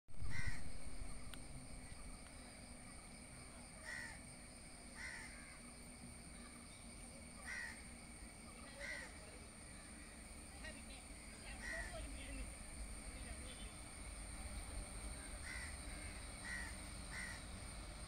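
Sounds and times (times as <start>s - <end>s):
low steady hum: 0.1s - 18.0s
crow cawing: 0.2s - 0.8s, 3.8s - 4.2s, 5.0s - 5.7s, 7.4s - 7.9s, 8.7s - 9.3s, 11.6s - 12.1s, 15.4s - 17.6s.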